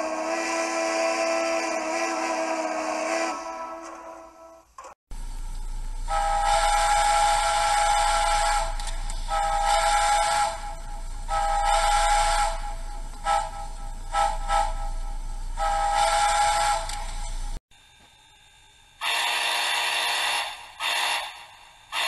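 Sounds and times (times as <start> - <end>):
steam whistle from small speaker: 0.0 - 4.7, 6.1 - 17.1, 19.0 - 22.0.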